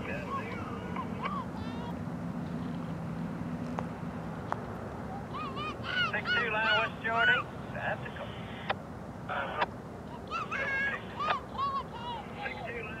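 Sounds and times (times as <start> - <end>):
geese honking: 5.8 - 7.5.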